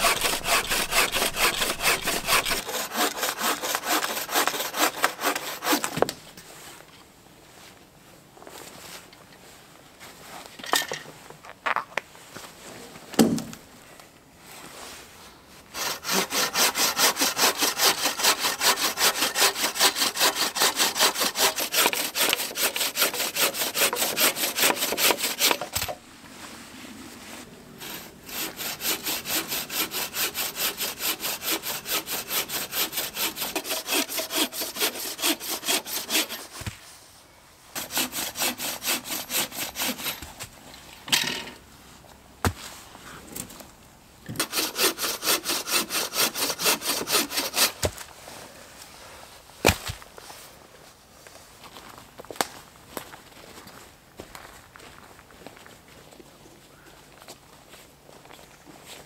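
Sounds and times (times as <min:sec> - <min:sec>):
bow saw cutting a log: 0:00.0 - 0:06.0, 0:15.7 - 0:26.0, 0:27.8 - 0:36.8, 0:37.8 - 0:40.3, 0:44.3 - 0:47.9.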